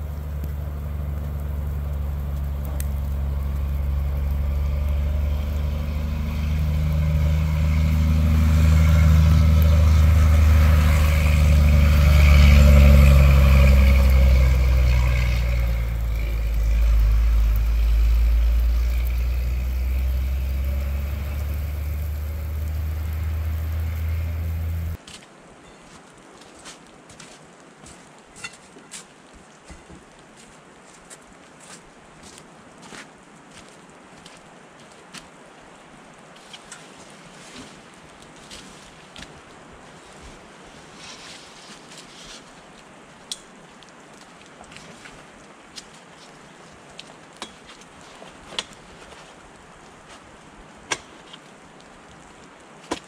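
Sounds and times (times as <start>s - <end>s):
truck engine driving past: 0.0s - 25.0s.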